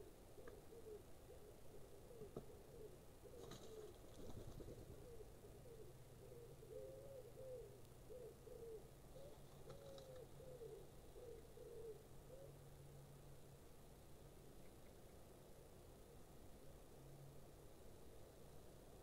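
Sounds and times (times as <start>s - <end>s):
pigeon cooing: 0.0s - 12.6s.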